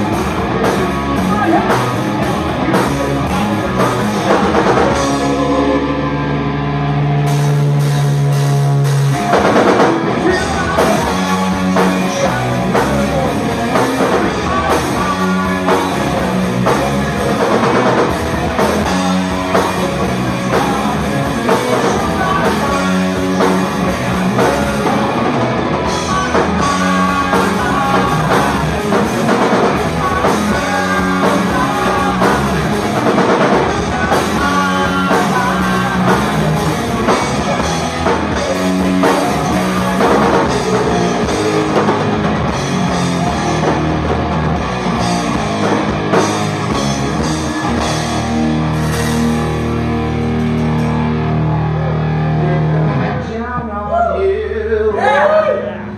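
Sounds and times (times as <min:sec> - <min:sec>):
live rock band playing: 0:00.0 - 0:55.9.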